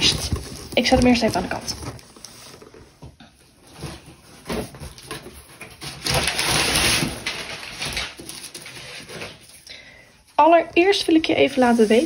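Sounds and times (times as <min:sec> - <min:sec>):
packaging rustling scrape: 0:00.0 - 0:09.6, 0:11.3 - 0:12.0.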